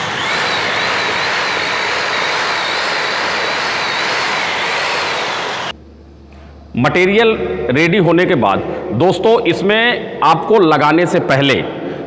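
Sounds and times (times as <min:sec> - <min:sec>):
electric drill mixer whining: 0:00.0 - 0:05.8.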